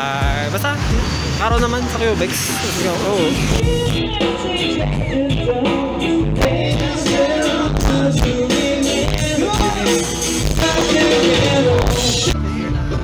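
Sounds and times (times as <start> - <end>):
drums: 0.0 - 13.0
electric guitars: 2.5 - 13.0
woman singing into a microphone: 3.6 - 9.7.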